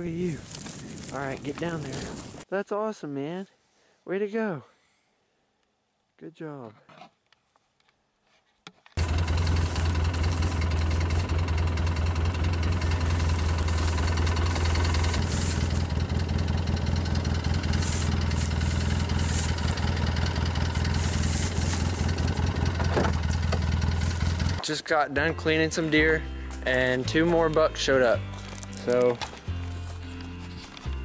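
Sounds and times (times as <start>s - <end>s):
vehicle engine idling: 9.0s - 24.6s.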